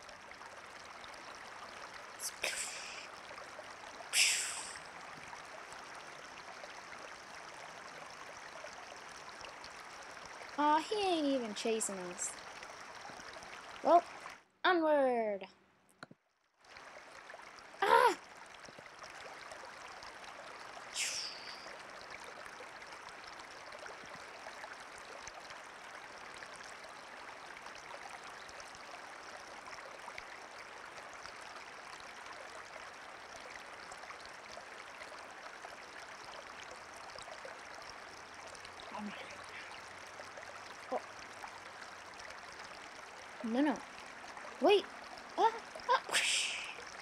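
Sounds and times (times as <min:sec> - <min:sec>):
stream rushing: 0:01.3 - 0:03.2, 0:04.1 - 0:05.0, 0:20.5 - 0:21.7, 0:38.8 - 0:46.9.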